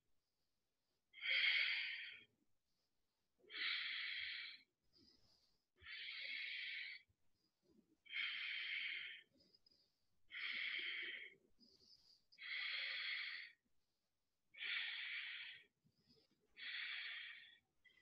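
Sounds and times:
woman breathing: 3.5s - 13.6s, 14.5s - 18.0s.

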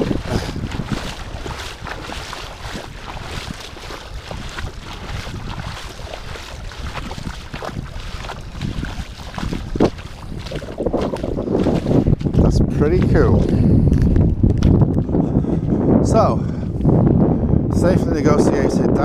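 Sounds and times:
footsteps splashing in shallow water: 0.0s - 15.8s
wind buffeting microphone: 0.0s - 19.0s.

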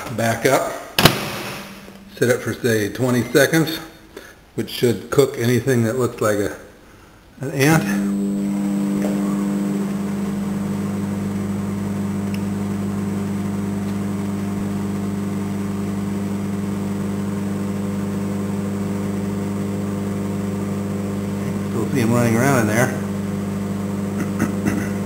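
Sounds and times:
microwave oven humming: 7.4s - 25.0s.

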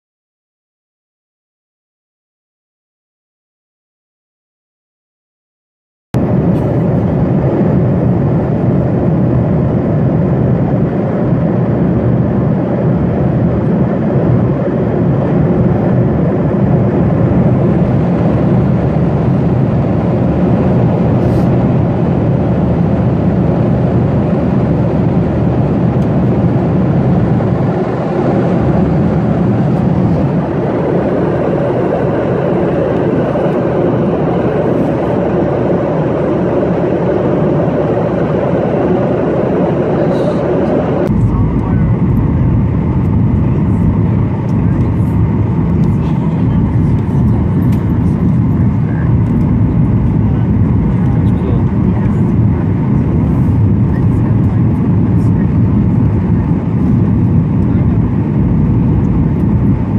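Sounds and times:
air rushing over fuselage: 6.2s - 59.9s
jet engines droning: 6.2s - 59.9s.

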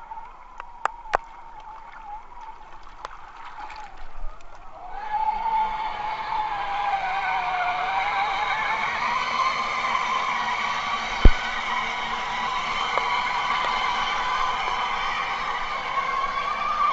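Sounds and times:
toy truck electric motor whining: 6.3s - 16.9s.

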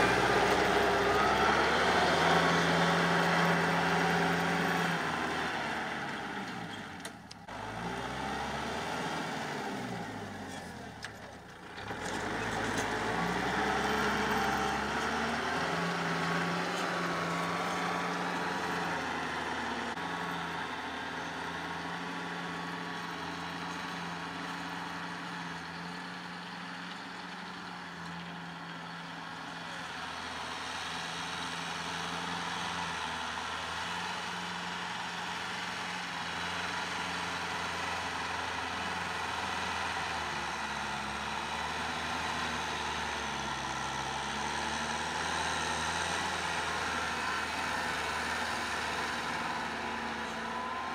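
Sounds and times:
tractor diesel engine running: 0.0s - 50.9s.

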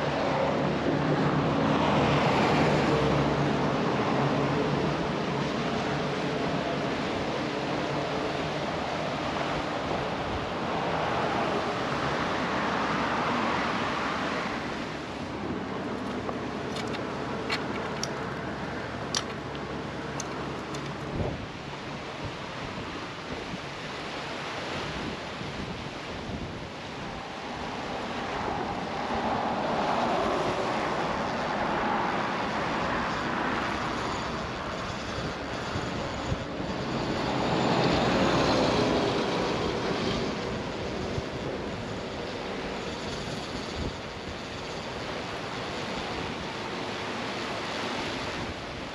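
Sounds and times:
wind on microphone: 0.0s - 48.9s
traffic passing: 26.8s - 40.8s.

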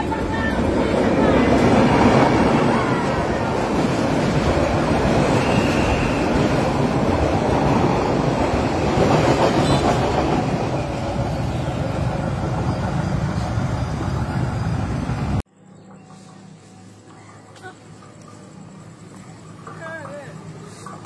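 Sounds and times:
train wheels rumbling on rails: 0.0s - 15.4s
faint outdoor sound: 0.0s - 21.0s.

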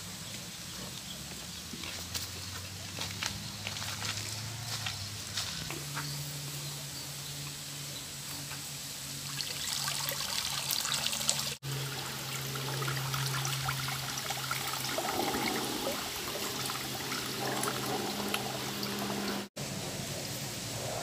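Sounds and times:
water pouring through colander: 9.2s - 19.5s.

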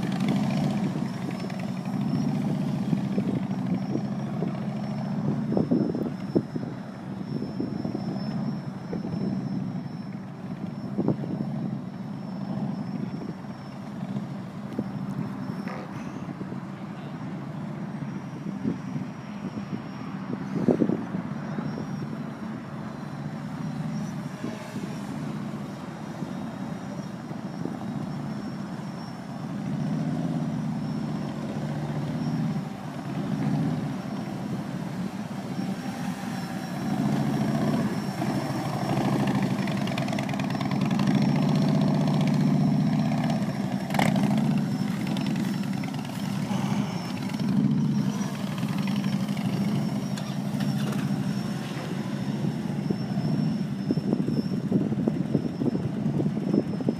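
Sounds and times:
motorcycle engines running: 0.0s - 56.9s.

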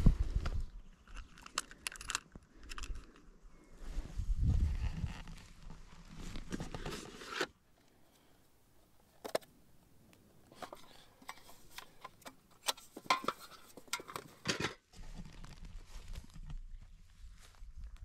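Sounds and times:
camera gear clicking and rattling: 1.0s - 3.2s.

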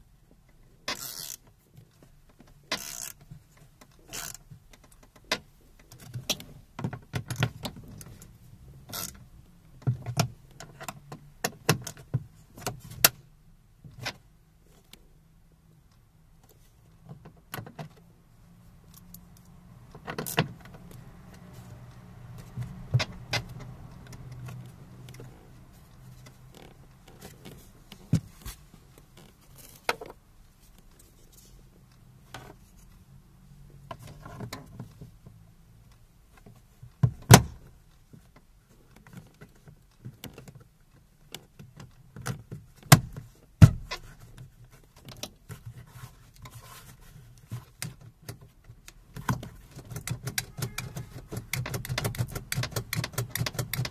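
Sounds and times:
plastic clicks and knocks: 47.6s - 53.9s.

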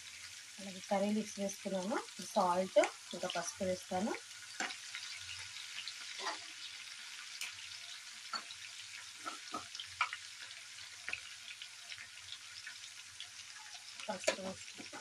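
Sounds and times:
food sizzling in hot oil: 0.0s - 15.0s
oil popping and crackling: 8.2s - 15.0s.

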